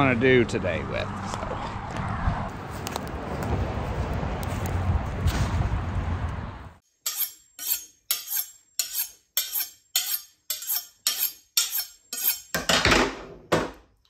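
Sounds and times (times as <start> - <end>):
knife honing on sharpening steel: 7.0 - 12.5.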